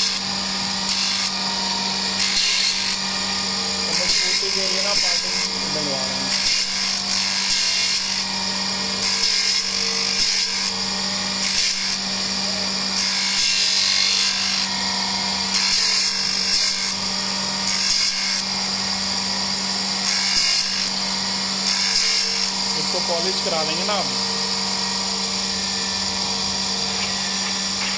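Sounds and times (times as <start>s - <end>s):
grinding wheel on steel: 0.0s - 27.9s
motor hum: 0.0s - 27.9s.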